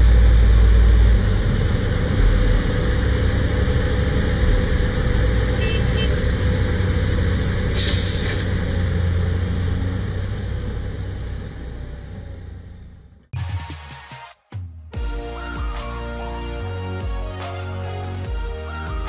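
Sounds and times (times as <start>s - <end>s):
excavator diesel engine running: 0.0s - 13.2s, 15.0s - 19.0s
short hydraulic hiss: 7.8s - 8.5s.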